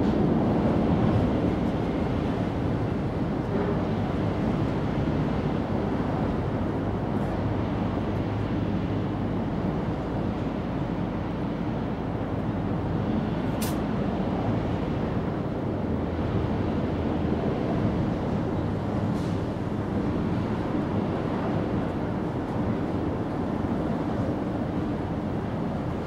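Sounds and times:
low outdoor rumble: 0.0s - 26.0s
sharp click: 13.6s - 13.8s.

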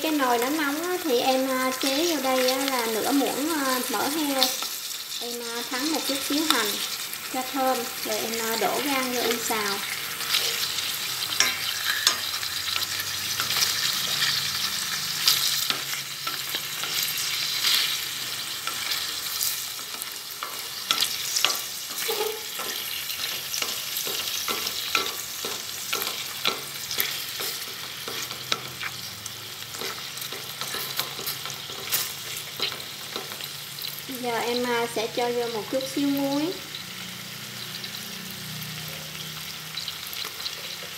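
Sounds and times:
liver sizzling in hot lard: 0.0s - 40.9s
chopsticks clicking and scraping pot: 7.4s - 33.6s.

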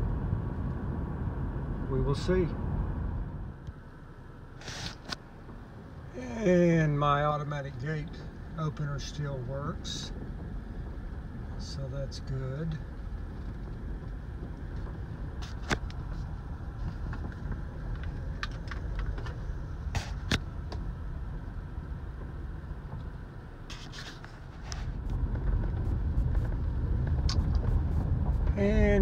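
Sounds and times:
car engine and tyres rumbling: 0.0s - 29.0s.

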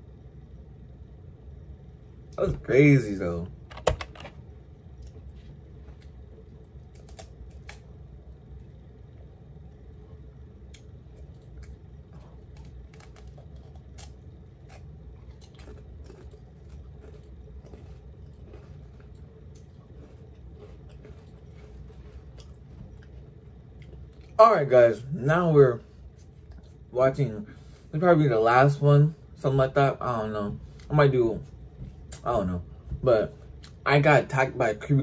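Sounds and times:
low steady hum: 0.0s - 35.0s
person chewing crunchy snack: 4.9s - 9.3s, 10.1s - 24.4s.

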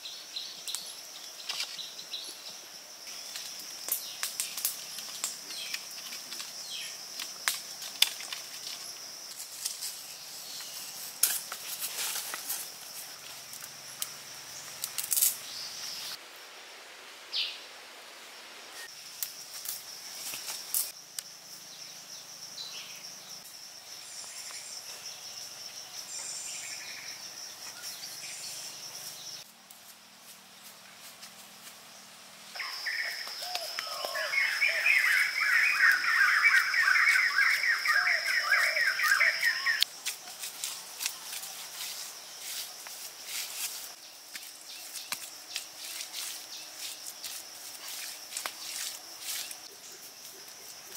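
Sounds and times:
bamboo sticks clicking: 7.2s - 8.8s
faint bird chirps: 32.6s - 39.8s
high-pitched insect drone: 32.6s - 50.9s.

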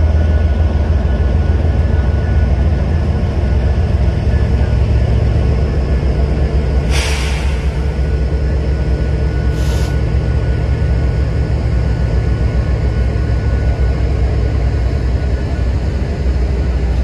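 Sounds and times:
freight train rumbling: 0.0s - 17.0s
burst of hiss: 6.9s - 7.9s, 9.6s - 10.0s.

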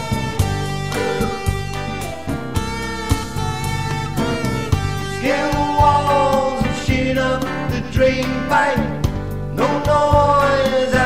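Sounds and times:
steady beat: 0.0s - 7.2s
bass line: 0.0s - 11.0s
guitar: 0.0s - 11.0s.

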